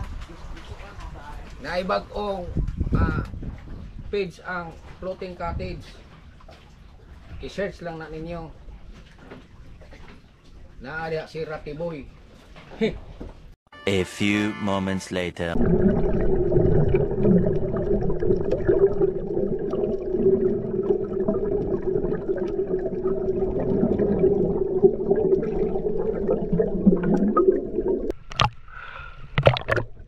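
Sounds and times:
muffled underwater rumble: 15.6s - 28.2s
water splash: 15.6s - 28.6s, 29.3s - 30.0s
small underwater clicks and crackles: 16.7s - 30.0s.

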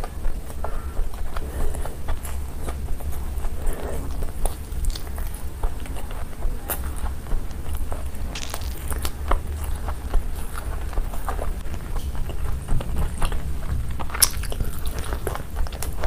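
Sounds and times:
chewing and mouth smacks: 0.0s - 16.0s
steady low hum: 0.0s - 16.0s.

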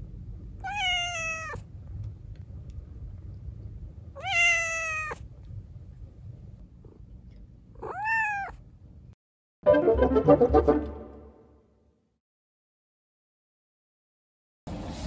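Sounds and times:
cat meowing: 0.6s - 1.6s, 4.2s - 5.2s, 7.8s - 8.6s.

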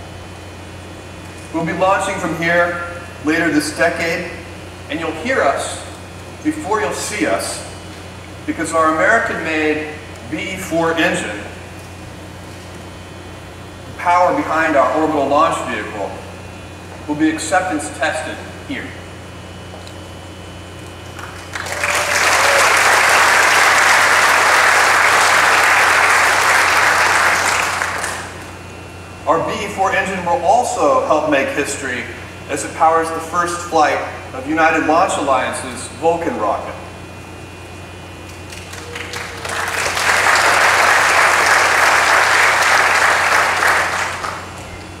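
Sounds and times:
audience applauding: 21.2s - 28.4s, 38.5s - 44.5s.

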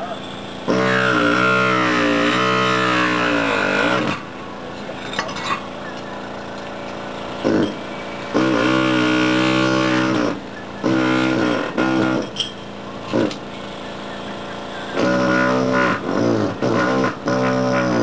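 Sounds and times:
pneumatic air hammer buzzing: 0.0s - 18.0s.

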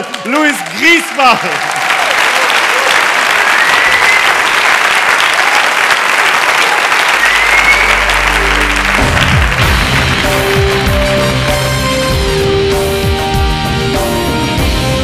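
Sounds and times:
audience applauding: 0.0s - 12.0s
crowd whistling: 2.7s - 5.6s, 6.6s - 9.1s
full band playing: 7.2s - 15.0s.

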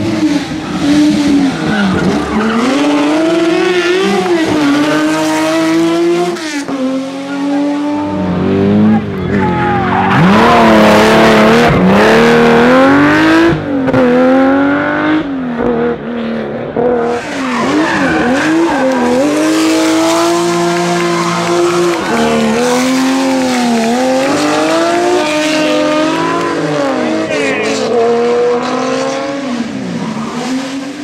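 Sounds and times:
rally car engine revving: 0.0s - 31.0s.

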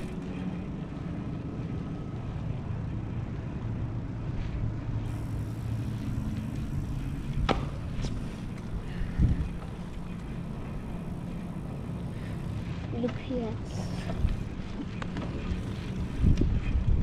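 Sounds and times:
bicycle rumbling: 0.0s - 17.0s
wind on microphone: 6.7s - 10.1s, 13.6s - 17.0s.

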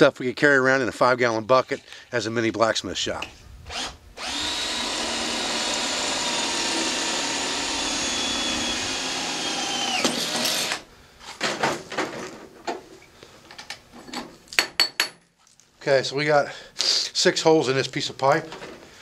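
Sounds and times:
cordless drill boring through metal: 3.7s - 10.9s
handling knocks and clatters: 11.4s - 12.9s.

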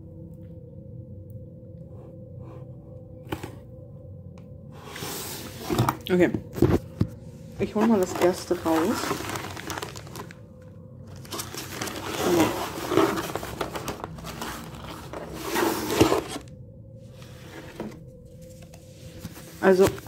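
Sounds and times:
hand rummaging in cardboard box: 4.8s - 10.4s, 11.1s - 16.5s, 17.2s - 20.0s
packaging rustling and crinkling: 4.9s - 16.5s, 17.1s - 20.0s.

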